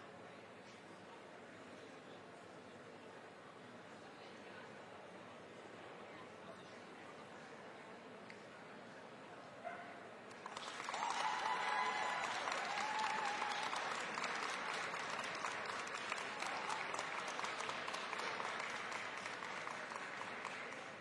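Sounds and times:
audience applauding: 10.3s - 21.0s.

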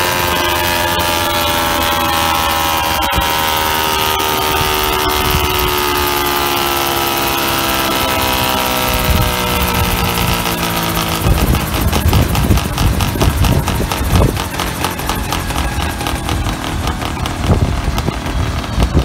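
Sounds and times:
model helicopter engine running: 0.0s - 19.0s
spinning rotors: 0.0s - 19.0s
gusty low rumble: 11.2s - 19.0s.

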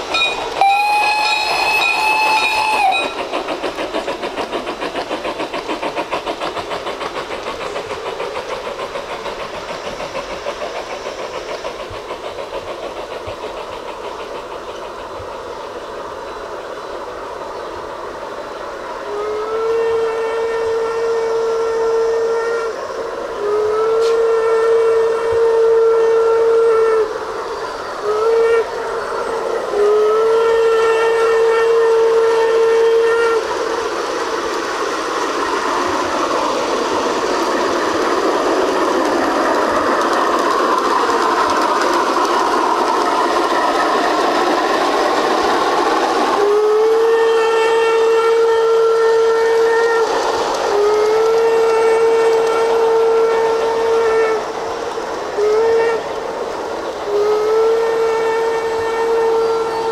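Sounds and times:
steady hissing: 0.0s - 59.9s
model train whistle: 0.1s - 3.2s, 19.0s - 27.2s, 28.0s - 33.8s, 46.1s - 54.6s, 55.3s - 56.2s, 57.0s - 59.9s.

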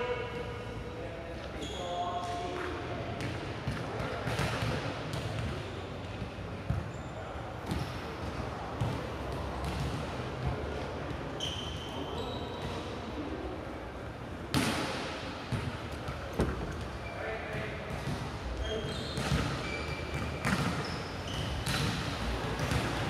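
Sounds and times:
shoe squeaks: 1.5s - 2.2s, 11.4s - 12.8s, 18.6s - 21.8s
ball bouncing on court floor: 1.6s - 5.6s, 6.2s - 6.9s, 7.6s - 10.8s, 14.5s - 16.9s, 18.9s - 23.0s.

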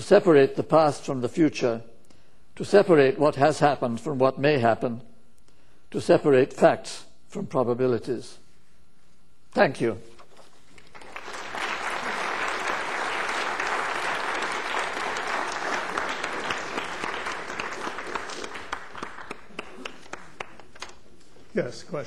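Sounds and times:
audience applauding: 10.8s - 21.0s.

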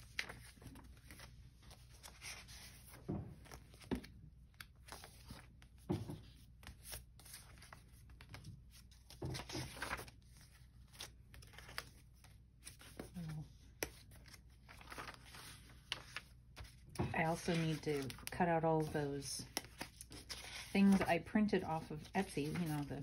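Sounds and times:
paper pages rustling: 0.0s - 23.0s
pages thumping down: 2.8s - 10.2s.

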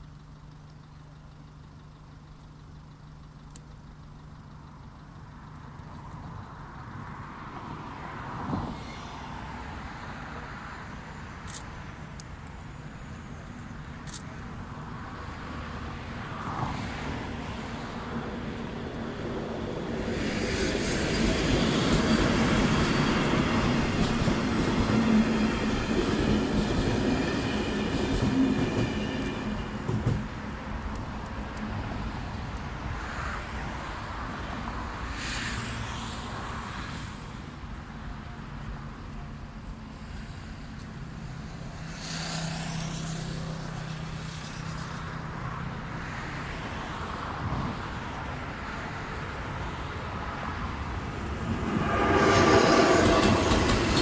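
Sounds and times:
train rolling noise: 0.0s - 54.0s
high wheel squeal: 8.5s - 11.4s, 12.5s - 14.0s, 20.2s - 30.0s, 51.1s - 54.0s
train wheels rumbling and clacking: 16.1s - 33.1s, 50.3s - 54.0s
high hiss from rails: 35.0s - 37.6s, 51.0s - 54.0s.

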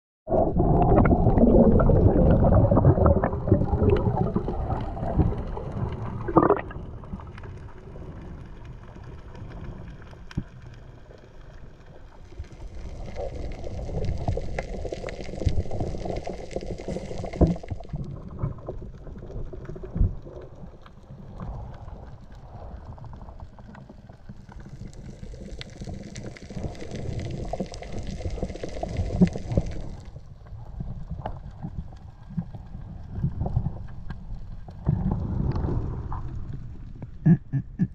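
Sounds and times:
underwater water rush and gurgle: 0.3s - 37.9s.

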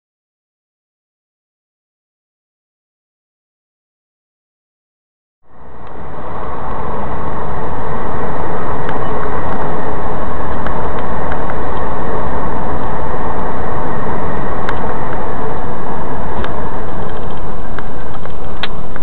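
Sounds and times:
road and engine noise: 5.4s - 19.0s
faint clicks: 8.4s - 12.3s.

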